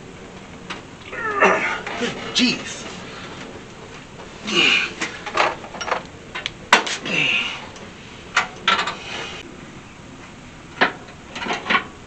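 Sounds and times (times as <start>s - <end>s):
person grunting with effort: 1.1s - 2.4s, 4.4s - 5.0s, 7.0s - 7.7s.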